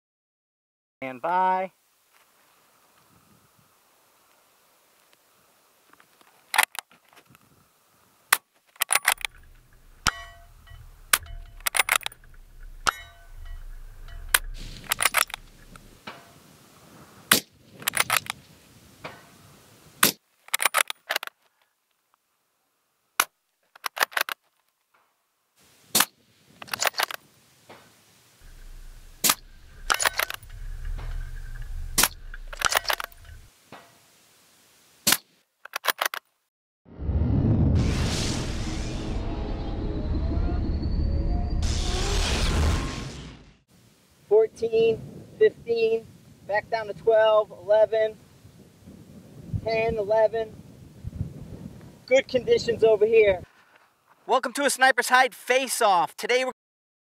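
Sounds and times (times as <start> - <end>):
rifle bolt clacking: 8.3 - 16.2, 17.3 - 18.4, 20.5 - 21.3, 23.2 - 24.4, 28.6 - 33.4, 35.1 - 36.2
suppressed rifle shots: 8.8 - 16.2, 28.4 - 33.5.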